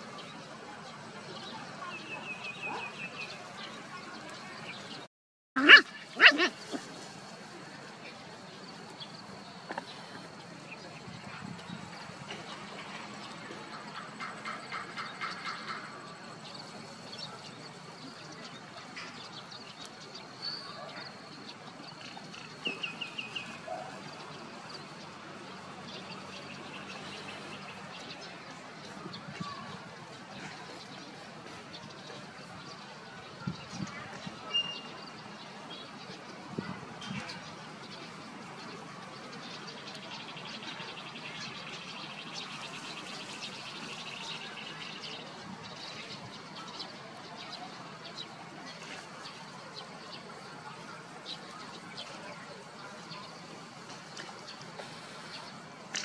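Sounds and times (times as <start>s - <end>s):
faint outdoor background: 0.0s - 56.0s
puppies yipping: 5.6s - 6.9s.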